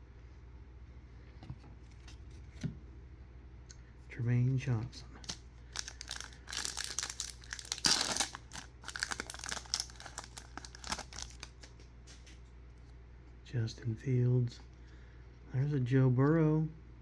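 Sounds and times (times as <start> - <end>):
foil wrapper tearing and crinkling: 5.2 - 11.7.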